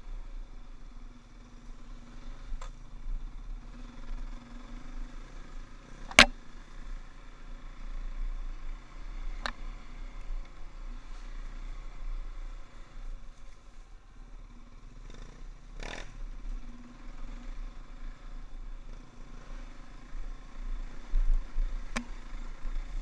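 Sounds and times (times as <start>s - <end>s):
dirt bike engine running: 14.5s - 23.0s.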